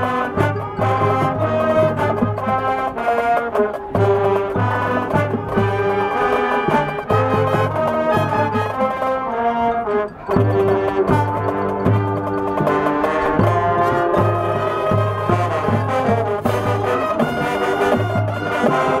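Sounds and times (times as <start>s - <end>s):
marching band brass: 0.0s - 19.0s.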